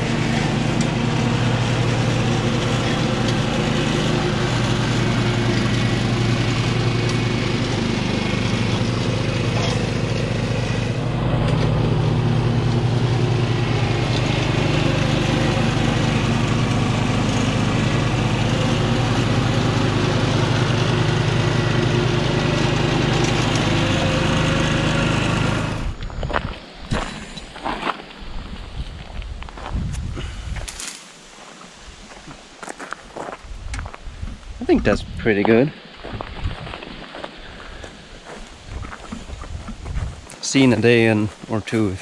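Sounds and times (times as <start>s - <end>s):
mower deck cutting tall grass: 0.0s - 26.0s
ride-on mower engine running: 0.0s - 26.0s, 34.7s - 42.0s.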